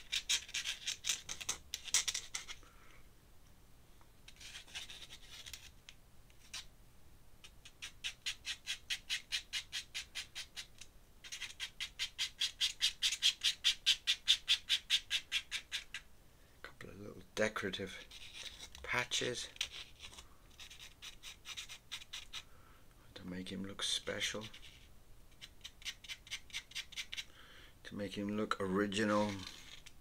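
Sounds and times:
pen scratching on paper: 0:11.2 - 0:15.8.

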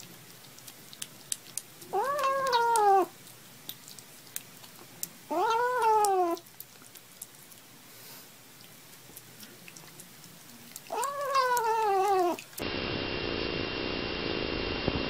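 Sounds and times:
faint clicks of eating: 0:00.0 - 0:12.6
kitten meowing: 0:01.9 - 0:03.1, 0:05.3 - 0:06.4, 0:10.9 - 0:12.5.

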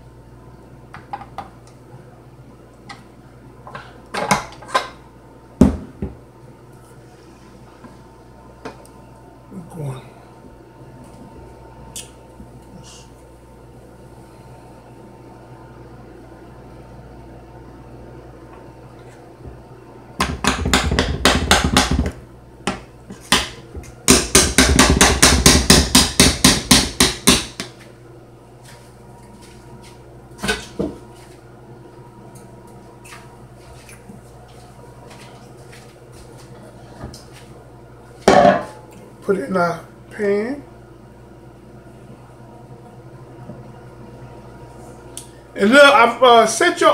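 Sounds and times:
mixer paddle knocking on metal bowl: 0:20.2 - 0:23.5, 0:24.1 - 0:27.7.

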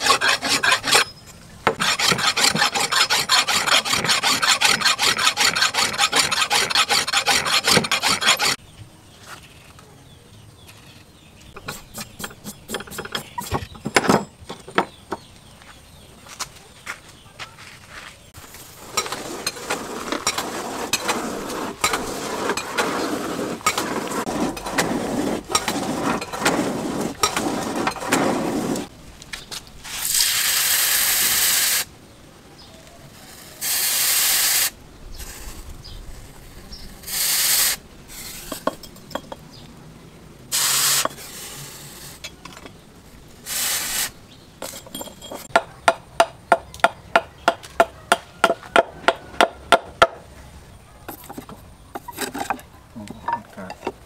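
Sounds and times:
scraping and rattling: 0:00.0 - 0:08.6, 0:18.8 - 0:28.9, 0:44.6 - 0:45.6, 0:51.1 - 0:54.0
hot metal hissing in water: 0:33.4 - 0:35.5, 0:37.0 - 0:38.6, 0:40.5 - 0:42.2.

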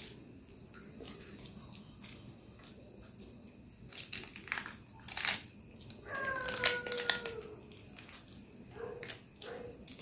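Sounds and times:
plastic packaging crinkling: 0:03.9 - 0:08.4.

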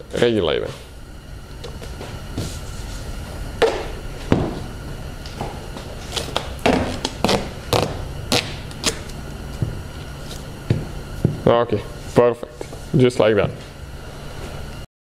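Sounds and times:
duct tape ripping: 0:06.2 - 0:09.2.

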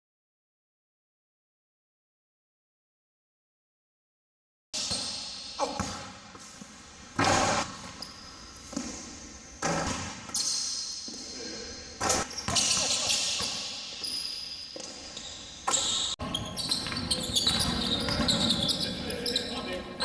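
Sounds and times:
voices: 0:16.2 - 0:20.0
basketball bouncing on wooden floor: 0:16.4 - 0:18.6.

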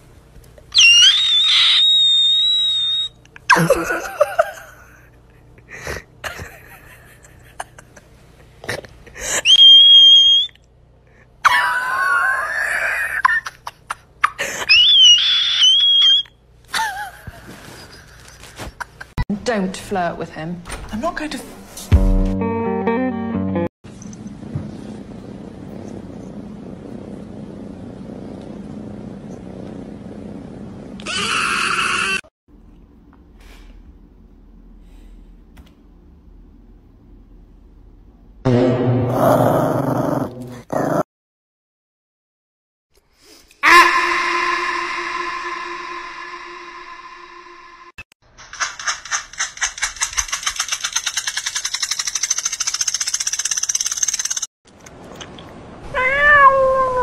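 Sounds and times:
loud high harsh sound: 0:43.6 - 0:48.0
low hum: 0:43.6 - 0:48.0
loud rattling pulse: 0:48.5 - 0:54.5
cat meowing: 0:55.9 - 0:57.0.

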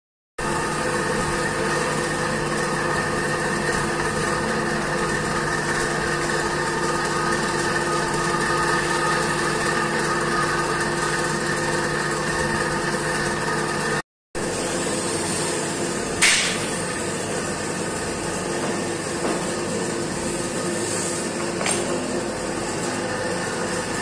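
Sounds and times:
workshop machinery droning: 0:00.4 - 0:24.0.

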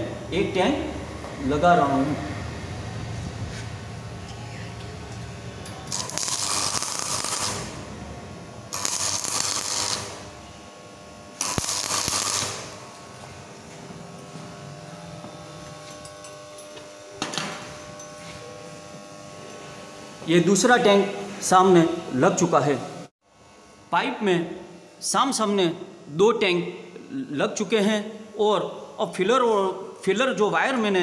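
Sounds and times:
welding arc crackling: 0:03.7 - 0:17.2.

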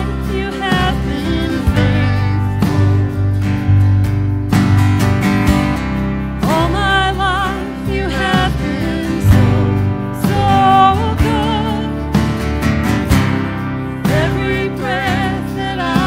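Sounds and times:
woman singing with vibrato: 0:00.0 - 0:03.1, 0:06.4 - 0:12.1, 0:14.0 - 0:16.0
electric guitar: 0:00.0 - 0:16.0.

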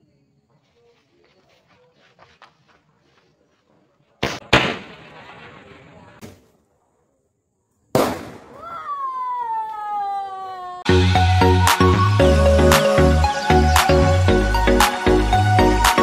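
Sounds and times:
fireworks crackling: 0:04.1 - 0:07.0
fireworks bangs: 0:04.2 - 0:07.0, 0:07.9 - 0:09.0.

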